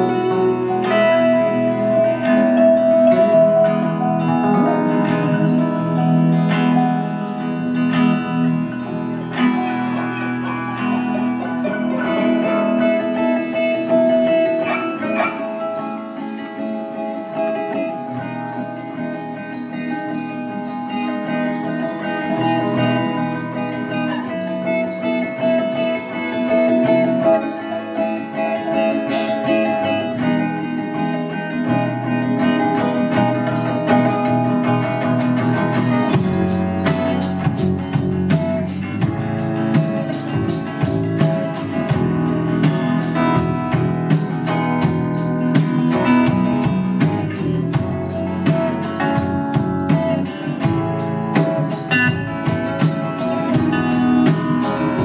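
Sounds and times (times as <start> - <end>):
guitars over bass: 0.0 - 55.0
drums with cymbal beat: 12.0 - 55.0.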